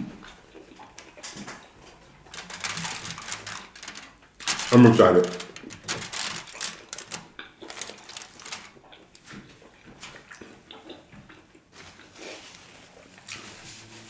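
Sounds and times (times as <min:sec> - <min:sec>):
wet clicks and foil crinkles: 0:00.8 - 0:11.0.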